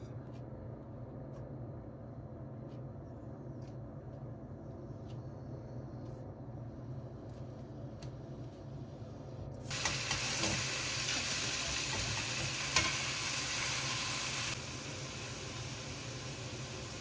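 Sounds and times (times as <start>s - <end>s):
food sizzling in a pan: 9.7s - 17.0s.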